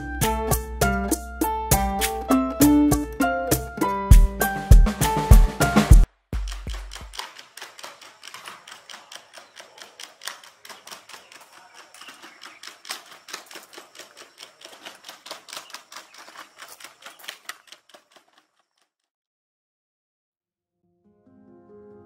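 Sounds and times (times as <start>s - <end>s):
robot dog feet clicking: 6.4s - 18.9s.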